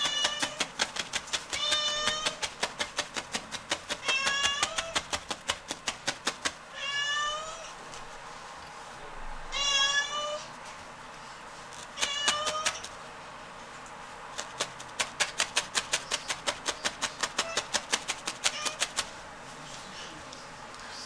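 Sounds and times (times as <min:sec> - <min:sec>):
cat meowing: 0:00.0 - 0:00.7, 0:01.5 - 0:02.4, 0:04.0 - 0:05.0, 0:06.7 - 0:07.8, 0:09.5 - 0:10.5, 0:12.0 - 0:12.9, 0:18.4 - 0:18.9.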